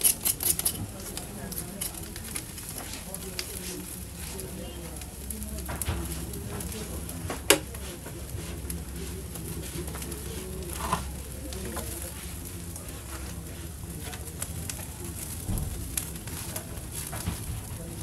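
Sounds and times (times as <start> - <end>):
fire crackling and popping: 0.0 - 18.0.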